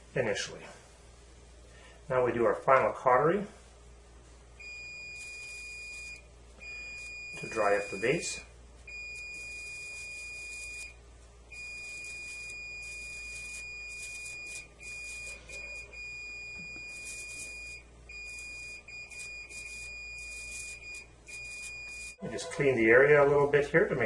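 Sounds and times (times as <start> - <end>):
electrocautery activation tone: 4.6 - 23.6.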